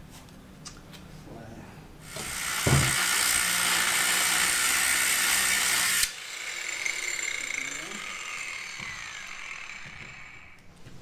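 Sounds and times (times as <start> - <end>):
power tool grating hiss: 2.0 - 10.6
knock: 2.6 - 3.0.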